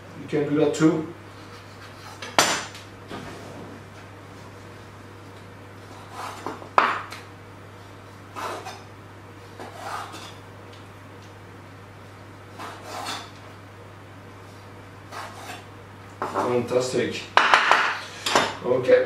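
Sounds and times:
knife scraping: 0:01.3 - 0:02.5, 0:05.8 - 0:06.6, 0:08.3 - 0:08.9, 0:09.6 - 0:10.4, 0:12.5 - 0:13.4, 0:15.1 - 0:16.7
knife cutting on wooden board: 0:05.9 - 0:07.0, 0:08.4 - 0:08.8, 0:09.6 - 0:10.4, 0:12.6 - 0:13.3, 0:15.1 - 0:15.6.

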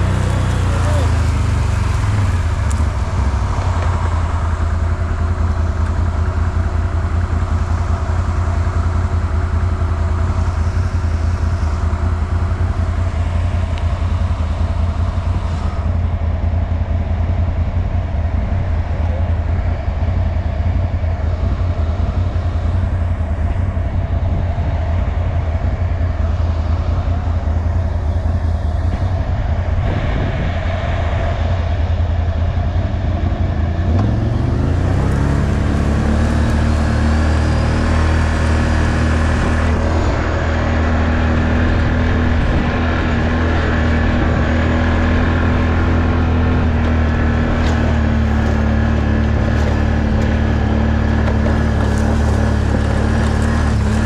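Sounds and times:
atv engine revving: 0:00.0 - 0:16.0, 0:32.8 - 0:54.0.

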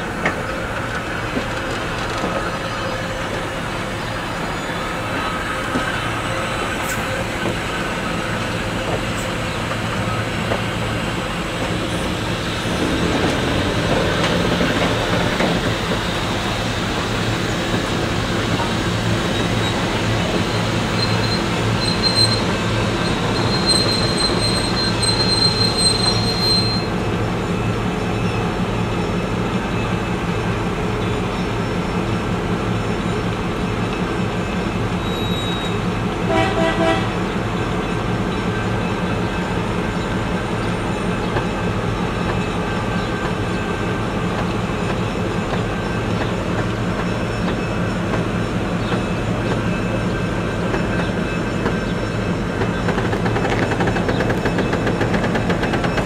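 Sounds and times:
train cars rolling: 0:00.0 - 0:56.0
train wheels squealing: 0:01.6 - 0:30.2, 0:33.0 - 0:36.0, 0:37.2 - 0:56.0
train horn toot: 0:35.0 - 0:37.2.

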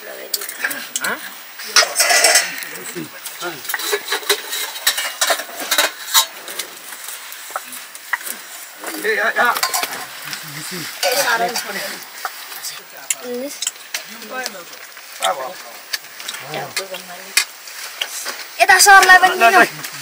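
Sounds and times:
food sizzling in a pan: 0:00.0 - 0:20.0
metal clinking against pan: 0:01.8 - 0:02.6
utensil stirring and scraping: 0:03.6 - 0:12.8.

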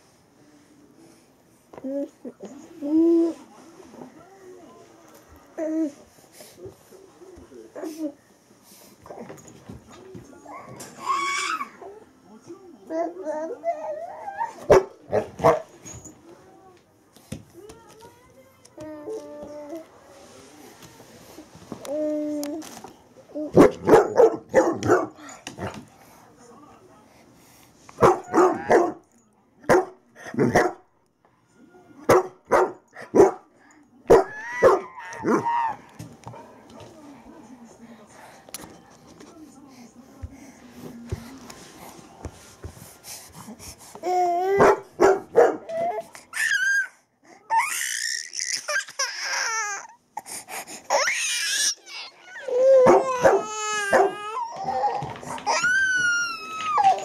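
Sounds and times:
dog barking excitedly: 0:23.6 - 0:25.2, 0:28.0 - 0:29.0, 0:29.7 - 0:30.8, 0:32.1 - 0:33.4, 0:34.1 - 0:35.4, 0:44.6 - 0:45.7, 0:52.8 - 0:54.2.

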